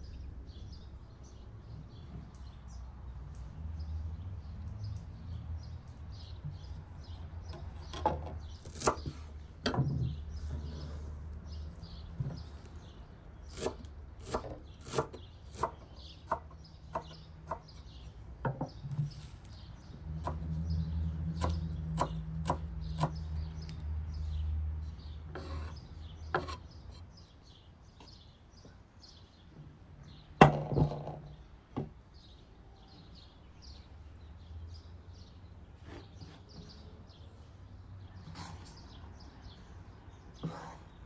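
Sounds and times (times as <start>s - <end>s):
small birds chirping: 0.0s - 41.0s
knife chopping on wooden board: 7.9s - 9.9s, 13.5s - 17.8s, 21.4s - 23.2s.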